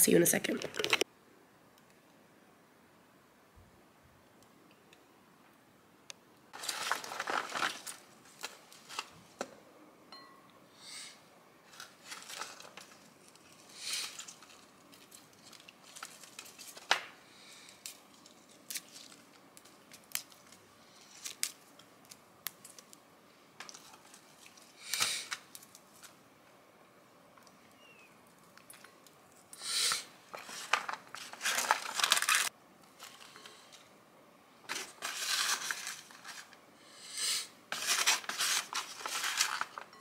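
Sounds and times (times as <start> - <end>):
plastic packaging rustling: 6.6 - 9.5, 11.6 - 23.0, 23.6 - 26.2, 30.2 - 33.8, 34.7 - 36.6, 37.7 - 40.0.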